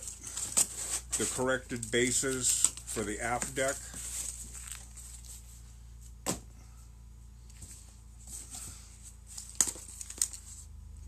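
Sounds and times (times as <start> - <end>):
cardboard scraping and rustling: 0.0 - 5.6.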